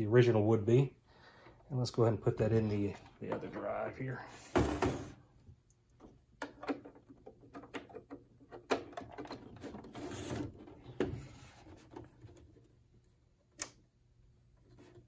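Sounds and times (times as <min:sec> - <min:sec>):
plastic cases clicking and knocking: 0:06.0 - 0:09.9.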